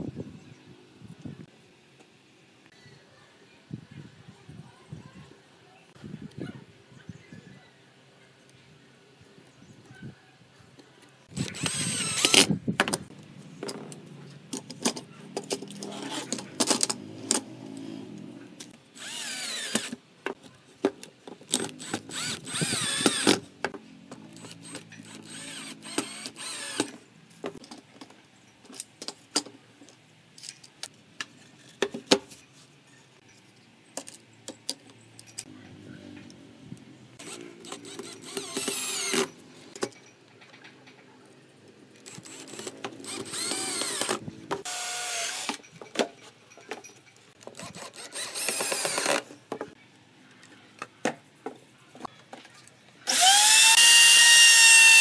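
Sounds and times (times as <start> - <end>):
cordless drill motor whining: 11.3 - 12.5, 19.0 - 20.0, 21.8 - 23.4, 24.4 - 26.9, 37.2 - 39.3, 42.0 - 45.6, 47.6 - 49.2, 53.1 - 55.0.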